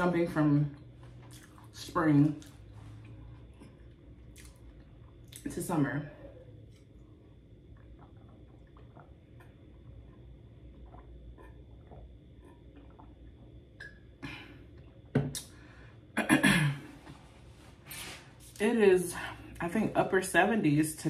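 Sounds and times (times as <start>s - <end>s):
swallowing: 6.1s - 15.5s.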